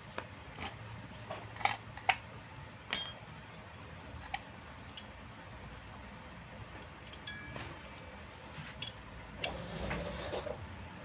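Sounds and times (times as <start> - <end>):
wrench clinking on metal: 2.9 - 3.4, 7.1 - 7.5.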